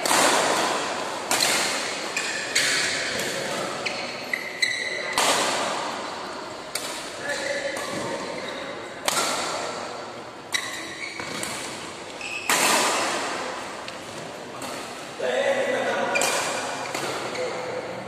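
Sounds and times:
racket hitting shuttlecock: 0.0s - 3.8s, 5.1s - 8.4s, 9.0s - 14.0s, 16.1s - 17.3s.

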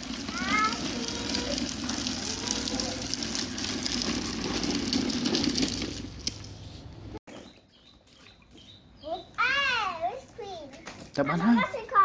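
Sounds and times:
plastic wheels rolling on paving: 0.0s - 8.0s.

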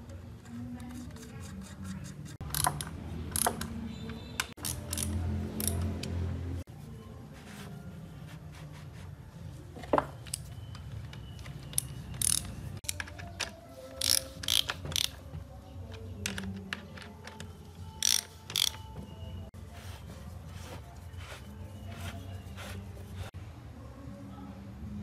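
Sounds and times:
ratchet wrench clicking: 2.4s - 3.7s, 4.5s - 6.2s, 11.7s - 15.2s, 18.0s - 18.8s.

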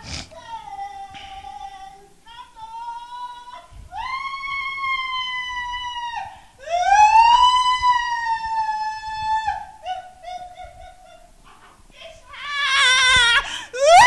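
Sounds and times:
woman wailing: 12.0s - 14.0s.

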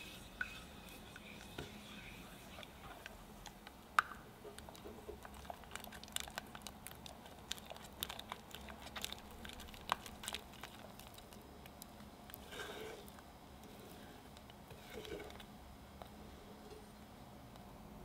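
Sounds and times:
spatula stirring thick cream: 0.0s - 3.8s, 4.4s - 16.2s.

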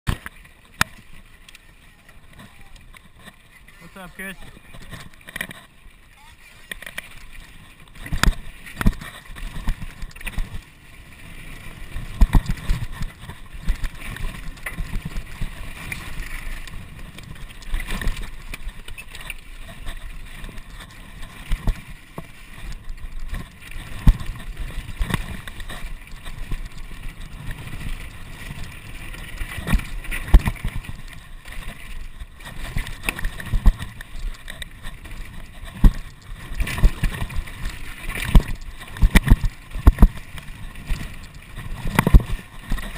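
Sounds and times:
bike rattling: 0.1s - 42.9s.

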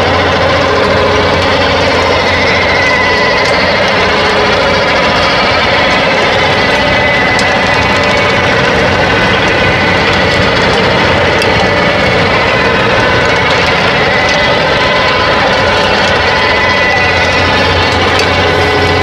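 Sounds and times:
tractor diesel engine running: 0.0s - 19.0s
whining tones: 0.0s - 19.0s.

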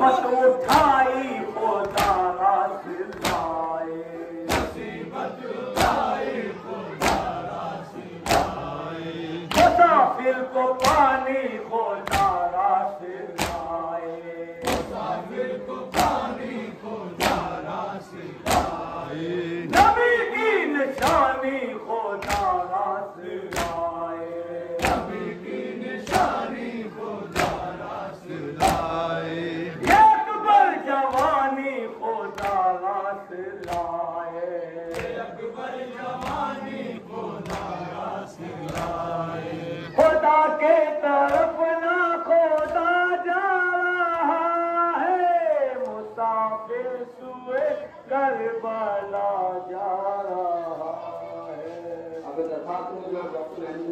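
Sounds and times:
men beating their chests: 0.0s - 13.9s, 14.6s - 32.8s, 33.5s - 34.1s, 34.9s - 40.2s
group chanting: 0.0s - 52.3s.

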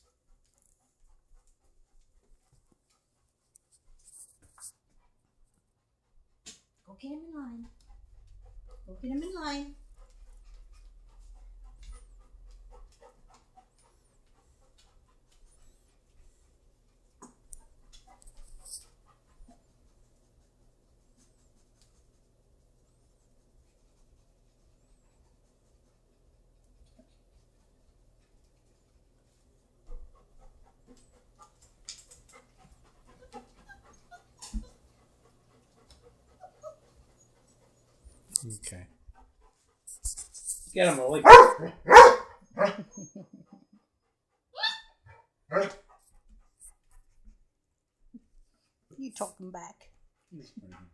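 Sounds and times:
paws ticking on tile floor: 0.0s - 44.4s, 45.0s - 50.9s
dog panting: 0.0s - 50.9s
puppies whimpering and squeaking: 36.3s - 37.9s, 42.8s - 43.6s, 44.6s - 45.0s
puppies squeaky whimpers: 44.6s - 44.9s.

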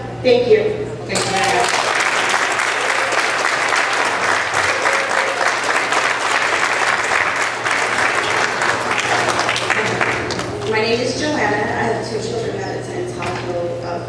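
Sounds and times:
audience applauding: 1.2s - 10.8s.

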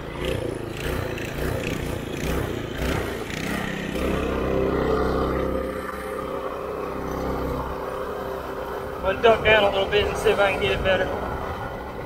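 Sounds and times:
small engine at full throttle: 0.0s - 12.0s
wind rush: 9.0s - 12.0s.

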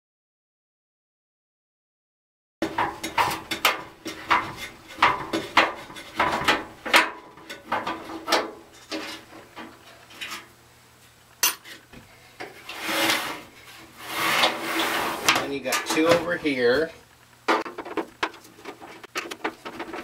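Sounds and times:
screw scraping in sheet metal: 12.6s - 15.4s.

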